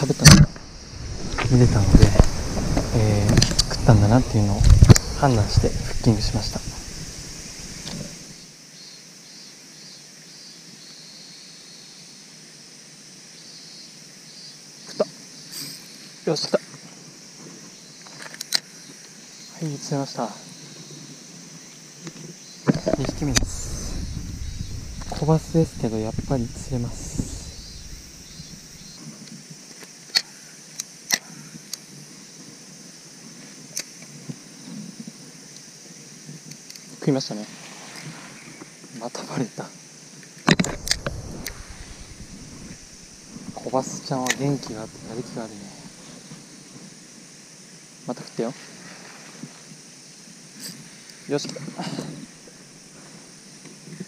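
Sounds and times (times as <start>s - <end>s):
high-pitched insect drone: 0.0s - 11.8s, 22.4s - 29.1s
faint hiss: 0.0s - 54.0s.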